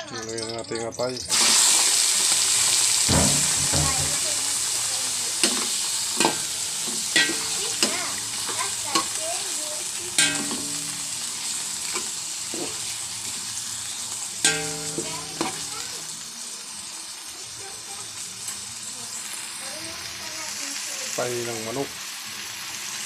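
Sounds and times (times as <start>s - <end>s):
food sizzling in hot oil: 0.0s - 23.0s
metal ladle knocking against pot: 3.1s - 4.3s, 6.2s - 8.0s, 10.2s - 11.1s.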